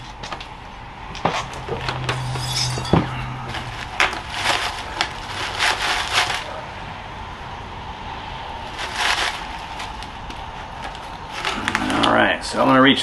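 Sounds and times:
gritty soil crunching and scraping: 0:01.4 - 0:06.7, 0:08.6 - 0:12.6.

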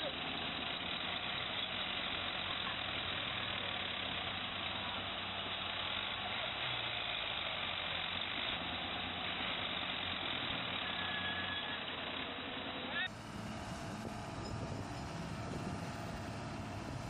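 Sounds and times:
tractor diesel engines idling: 0:00.0 - 0:17.0.

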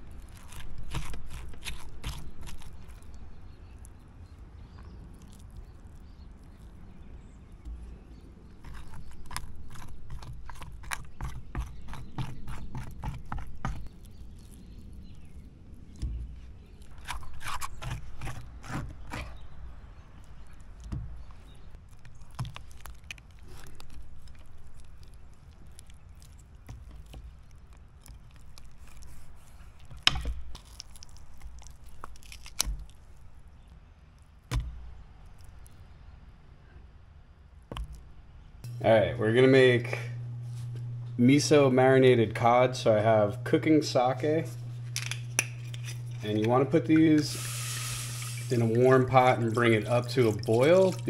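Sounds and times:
knife cutting through fish bone: 0:00.0 - 0:03.3, 0:08.6 - 0:14.6, 0:16.8 - 0:19.6
knife scraping and cutting fish: 0:00.0 - 0:03.3, 0:08.6 - 0:14.6, 0:16.0 - 0:19.6, 0:44.5 - 0:51.0.

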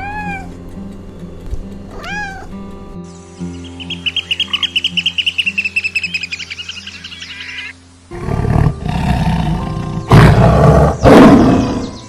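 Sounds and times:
sparrow chirping: 0:00.0 - 0:07.7
background music: 0:00.0 - 0:12.0
lion growling and roaring: 0:08.1 - 0:12.0.

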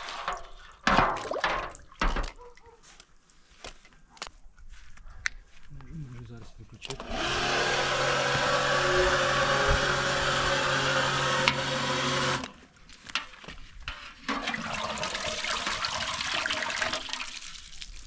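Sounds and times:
pump humming: 0:07.0 - 0:12.6.

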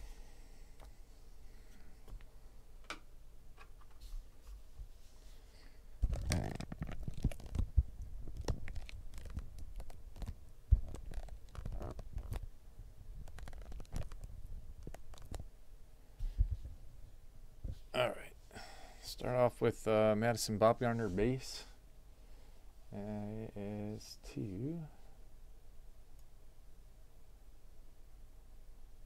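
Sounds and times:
camera handling rumble and scraping: 0:06.0 - 0:12.4, 0:13.2 - 0:15.4.

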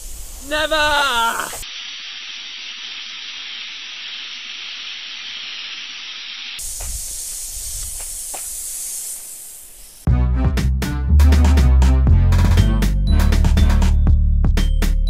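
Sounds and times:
water spraying from hose nozzle: 0:00.0 - 0:10.1.

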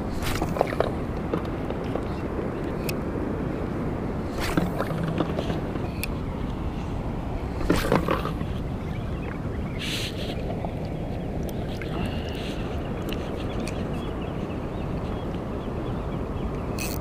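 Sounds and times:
seawater sloshing and splashing: 0:00.0 - 0:02.6, 0:04.2 - 0:05.9, 0:07.4 - 0:08.8.

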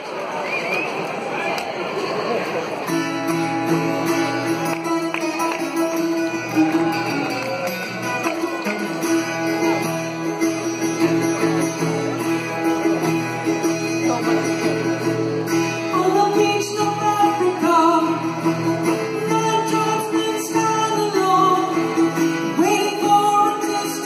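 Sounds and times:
plucked mandolin notes: 0:02.6 - 0:24.0
rock band playing live: 0:02.9 - 0:24.0.

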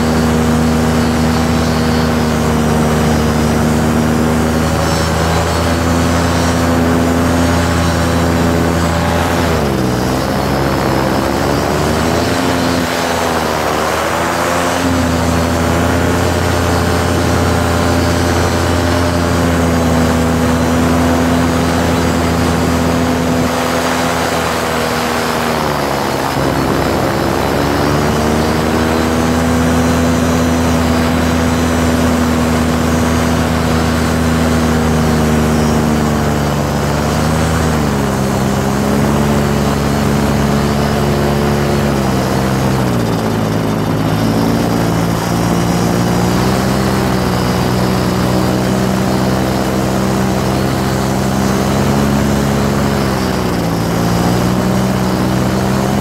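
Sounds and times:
microlight engine and propeller: 0:00.0 - 0:56.0.

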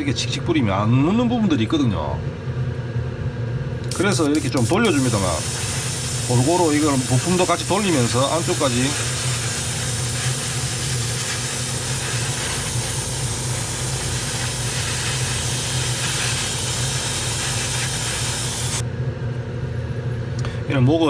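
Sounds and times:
steady low hum: 0:00.0 - 0:21.0
airbrush hissing: 0:03.9 - 0:18.8.

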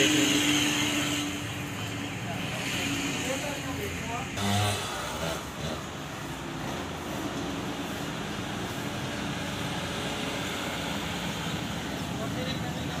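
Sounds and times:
street noise: 0:00.0 - 0:13.0.

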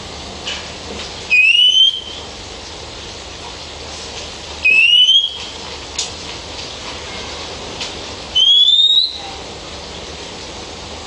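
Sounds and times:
bird whistled call: 0:01.3 - 0:02.2, 0:04.6 - 0:05.5, 0:08.4 - 0:09.3.

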